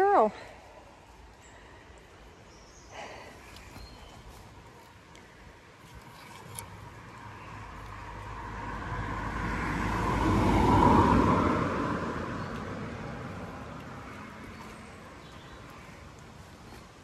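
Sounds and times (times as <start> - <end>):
road vehicle passing by: 6.4 - 17.0.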